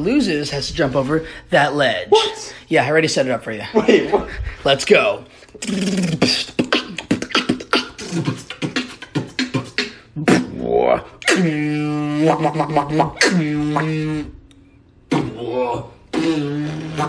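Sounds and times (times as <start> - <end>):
beatboxing: 5.5 - 14.4, 15.1 - 17.0
held vocal note: 5.6 - 14.5, 15.1 - 17.0.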